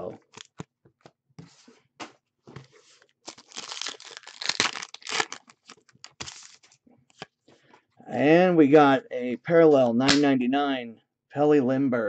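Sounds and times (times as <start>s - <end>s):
plastic sleeves crinkling: 2.6s - 7.2s.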